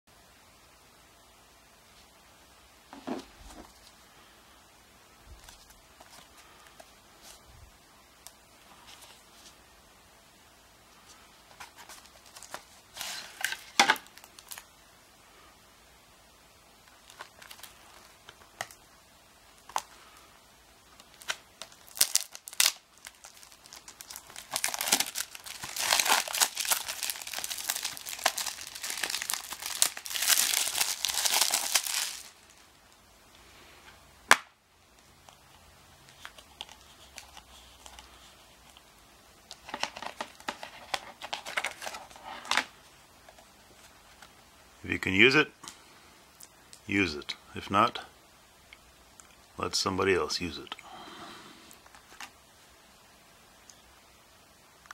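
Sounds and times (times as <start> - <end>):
paper rustling: 11.0 - 14.1, 39.6 - 42.7
shrink wrap crinkling and tearing: 11.5 - 14.6, 16.8 - 18.8, 20.9 - 33.0, 35.2 - 44.3, 51.7 - 52.4.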